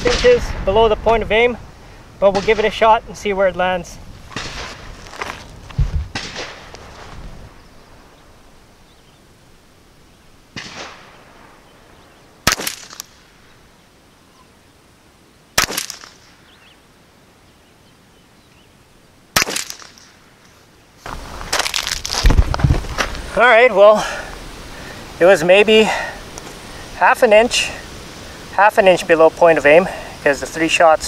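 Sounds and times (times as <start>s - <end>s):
rifle shots: 4.3s - 4.9s, 6.1s - 6.7s, 10.5s - 11.5s, 12.4s - 13.3s, 15.6s - 16.4s, 19.3s - 20.2s.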